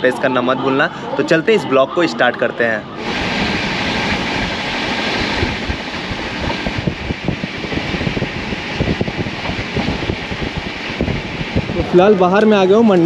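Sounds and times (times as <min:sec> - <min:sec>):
train wind rush: 0:00.0 - 0:13.0
train wheels clacking on rails: 0:03.1 - 0:11.8.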